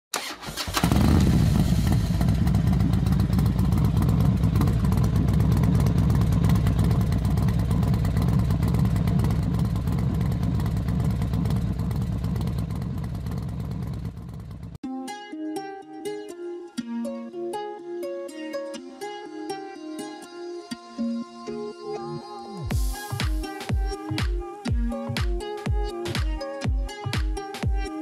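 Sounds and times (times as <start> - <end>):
motorcycle engine running hard: 0.7 - 14.8.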